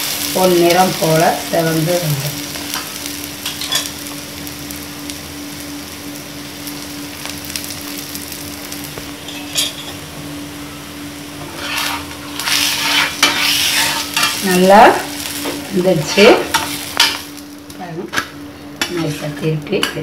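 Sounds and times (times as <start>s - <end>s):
dosa sizzling in oil: 0.0s - 20.0s
spatula scraping pan: 11.4s - 14.5s, 18.8s - 19.9s.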